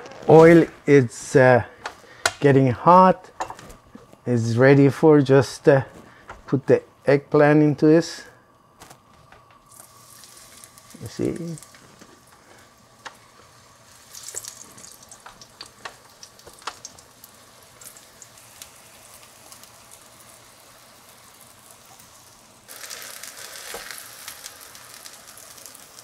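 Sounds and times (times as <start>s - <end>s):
eggplant sizzling in oil: 9.6s - 26.0s.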